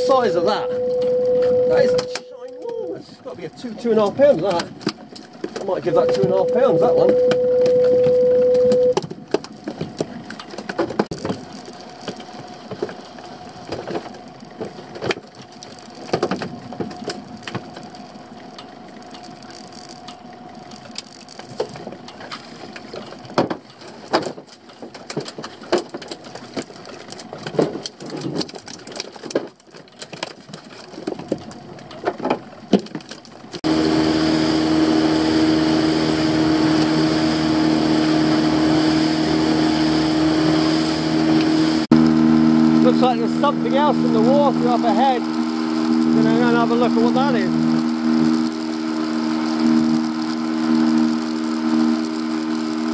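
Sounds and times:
outboard motor running: 0.0 - 52.9.

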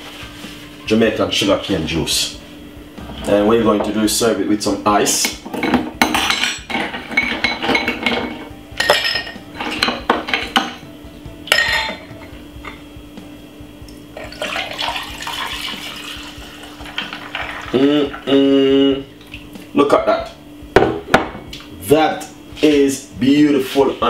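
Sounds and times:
ice clinking on glass: 6.0 - 10.8, 11.5 - 12.0, 14.2 - 18.2
juice pouring over ice: 14.2 - 18.2.

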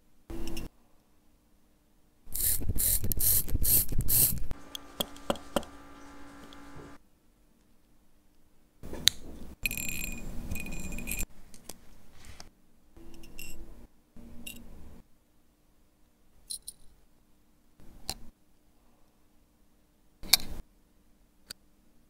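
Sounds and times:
small metal parts clicking: 9.6 - 11.3.

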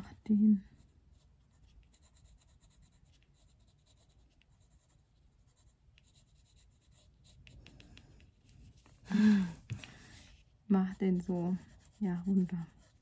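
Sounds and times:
pencil scratching on paper: 0.0 - 9.0, 9.6 - 13.0.

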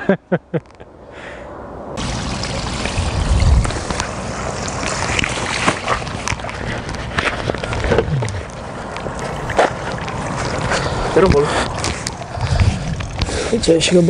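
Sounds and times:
water pouring from bucket: 2.0 - 6.7.

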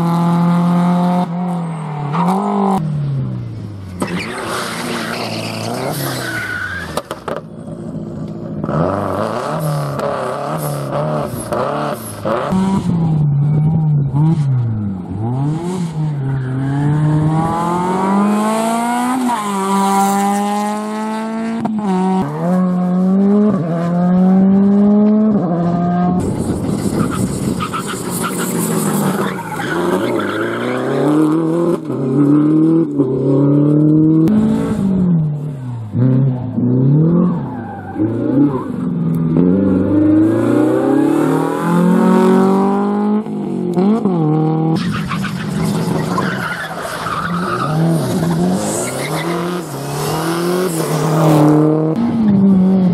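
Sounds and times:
rally car engines revving: 0.0 - 52.9.

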